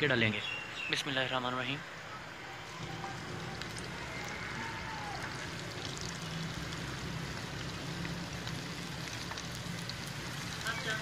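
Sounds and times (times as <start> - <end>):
food deep-frying in hot oil: 2.5 - 11.0.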